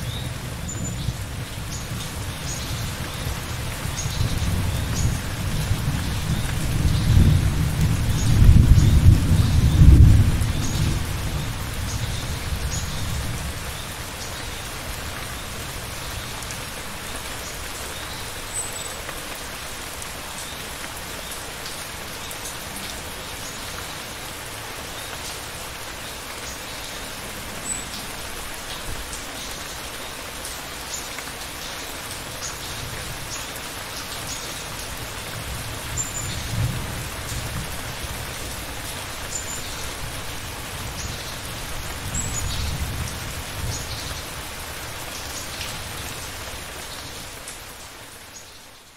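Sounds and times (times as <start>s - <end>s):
steady rain falling: 0.0s - 48.9s
low rumble of thunder: 0.9s - 13.7s.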